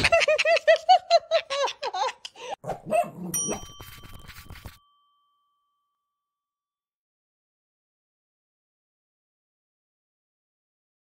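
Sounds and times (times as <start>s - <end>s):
bright chime: 3.3s - 6.4s.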